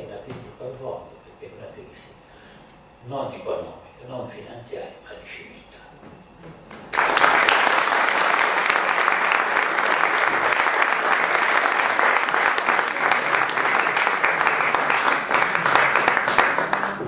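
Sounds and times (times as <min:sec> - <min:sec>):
people applauding: 0:06.9 - 0:17.0.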